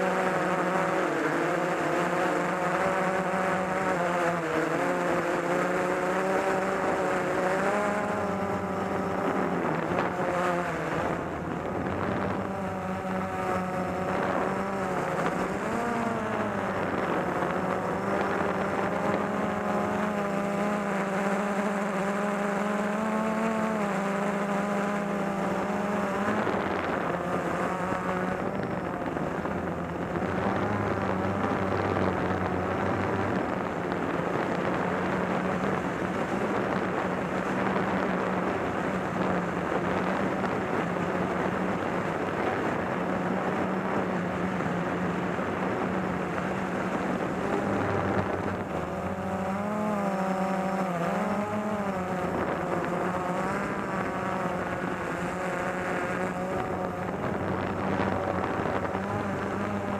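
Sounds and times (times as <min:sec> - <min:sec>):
drone motors whining: 0:00.0 - 0:59.9.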